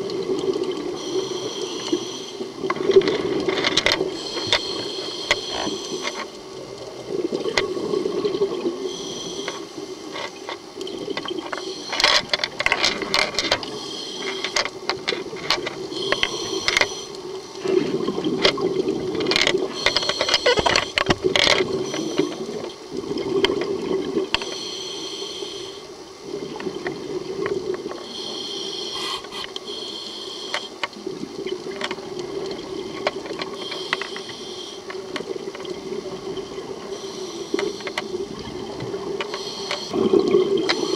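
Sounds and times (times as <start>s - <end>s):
regulator hissing inhalations: 0.9s - 2.5s, 4.1s - 6.3s, 8.8s - 9.8s, 13.7s - 14.7s, 15.9s - 17.2s, 19.7s - 21.0s, 21.8s - 22.5s, 24.4s - 25.9s, 28.0s - 30.8s, 33.5s - 35.0s, 36.8s - 38.4s, 39.2s - 40.0s
exhaled bubbles rushing: 6.6s - 8.9s, 17.6s - 19.8s, 39.9s - 40.9s.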